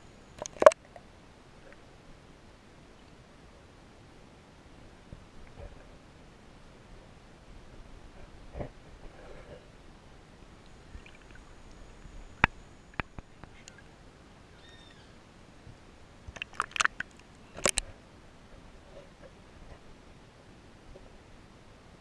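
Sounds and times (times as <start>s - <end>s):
clicks and crackles: 0.4s - 0.9s, 12.4s - 13.8s, 16.3s - 17.9s.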